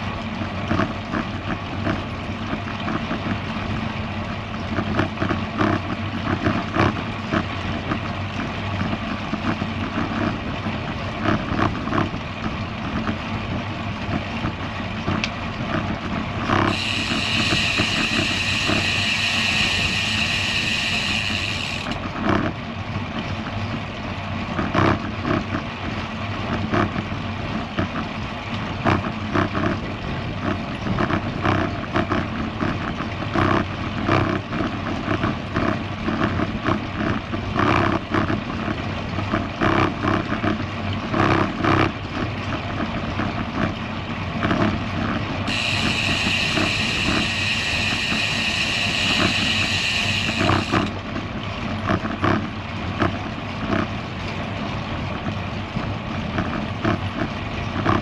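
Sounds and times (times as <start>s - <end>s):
bicycle freewheel ratcheting buzz: 16.5s - 22.1s, 45.4s - 51.0s
bike tyres rolling: 16.5s - 22.1s.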